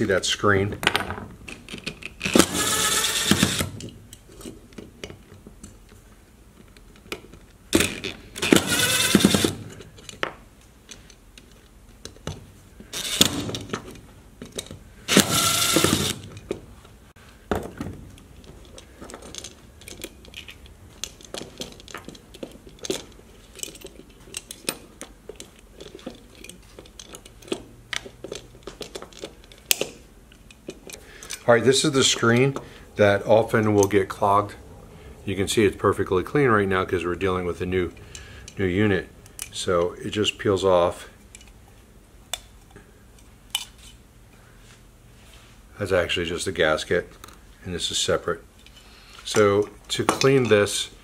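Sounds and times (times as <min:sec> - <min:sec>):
cordless driver whirring: 0:02.2 - 0:03.8, 0:07.8 - 0:09.6, 0:15.1 - 0:16.3
metal screws clicking and rattling: 0:18.4 - 0:31.5.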